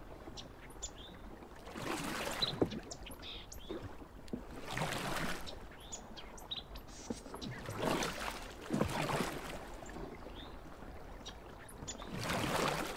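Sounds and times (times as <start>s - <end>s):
kayak paddle swishing through water: 1.2s - 12.9s.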